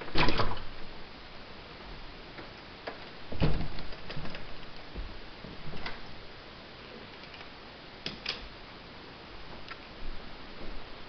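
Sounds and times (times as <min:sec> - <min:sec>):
footsteps clicking and knocking: 0:01.9 - 0:06.0.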